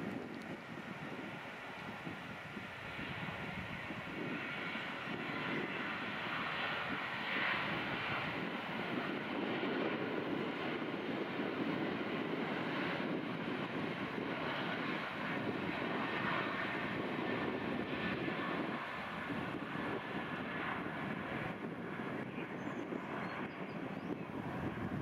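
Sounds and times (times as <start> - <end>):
jet engine rumble at takeoff: 0.0 - 25.0.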